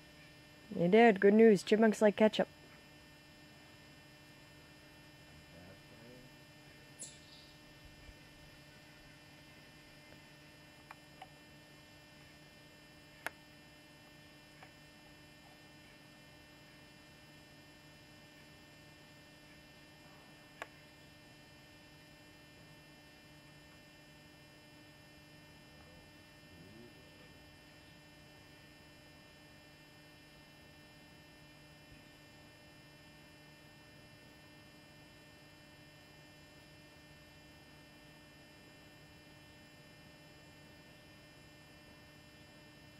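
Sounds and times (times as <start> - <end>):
low electrical hum: 0.0 - 42.9.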